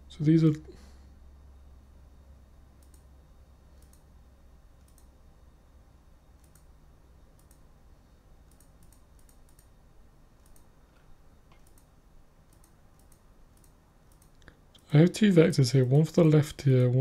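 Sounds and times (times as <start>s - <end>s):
low steady hum: 0.0s - 17.0s
computer mouse clicks: 2.8s - 3.1s, 3.7s - 4.1s, 4.8s - 5.2s, 6.4s - 6.7s, 7.3s - 7.7s, 8.4s - 9.7s, 10.4s - 11.9s, 12.5s - 14.6s.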